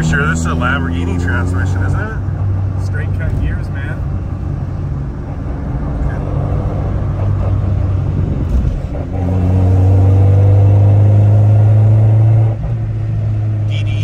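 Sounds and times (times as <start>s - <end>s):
car engine drone from cabin: 0.0s - 14.0s.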